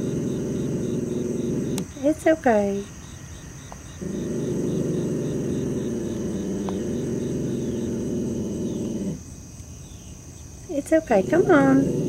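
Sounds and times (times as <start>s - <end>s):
dog growling low: 0.0s - 2.0s, 3.9s - 9.3s, 11.0s - 12.0s
crickets chirping faintly: 0.0s - 12.0s.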